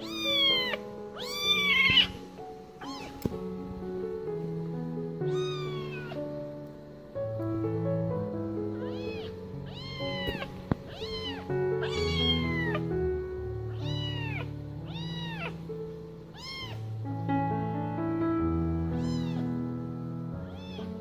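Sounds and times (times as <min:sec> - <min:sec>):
kitten meowing: 0:00.0 - 0:02.2, 0:02.8 - 0:03.4, 0:05.3 - 0:06.3, 0:08.7 - 0:13.0, 0:13.7 - 0:15.7, 0:16.3 - 0:17.0, 0:18.9 - 0:19.5, 0:20.5 - 0:21.0
background music sustained notes: 0:00.0 - 0:21.0.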